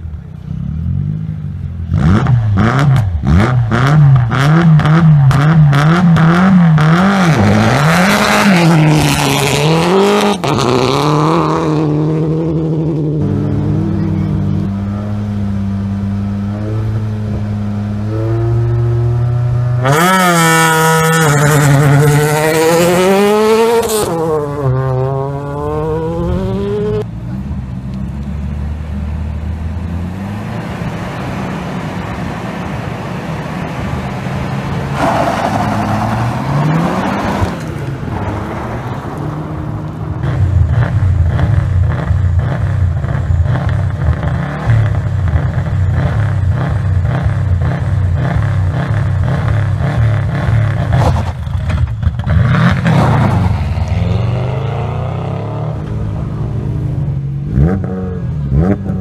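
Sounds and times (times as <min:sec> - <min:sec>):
rally car engine revving: 0:00.0 - 0:59.0
car launching on gravel: 0:50.8 - 0:53.9.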